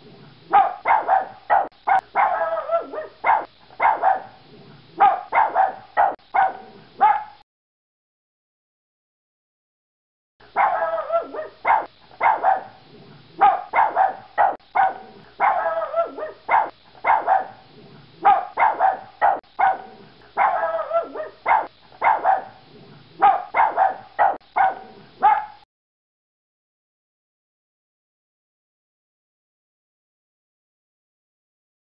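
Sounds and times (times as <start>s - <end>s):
small dog barking: 0.5s - 4.4s, 5.0s - 7.4s, 10.5s - 12.8s, 13.4s - 17.6s, 18.2s - 22.6s, 23.2s - 25.7s.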